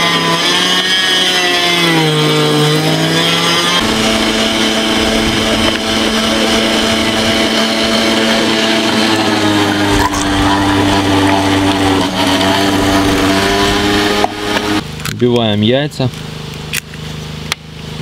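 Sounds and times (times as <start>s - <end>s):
electric meat grinder humming: 0.0s - 14.8s.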